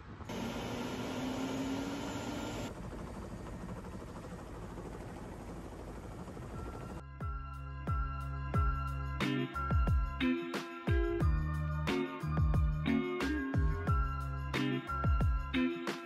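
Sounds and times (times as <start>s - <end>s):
faint whine: 0.0s - 7.0s
helicopter engine and rotor: 0.2s - 7.0s
music: 6.3s - 16.0s.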